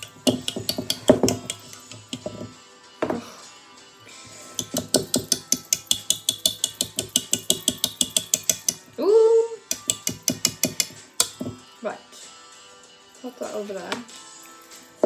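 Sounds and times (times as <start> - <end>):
whisk knocking against bowl: 0.0 - 2.5, 4.6 - 8.8.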